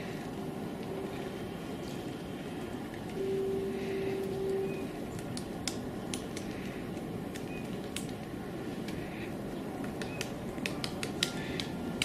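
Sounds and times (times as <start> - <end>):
woodpecker pecking tree bark: 5.1 - 9.1, 9.8 - 12.0.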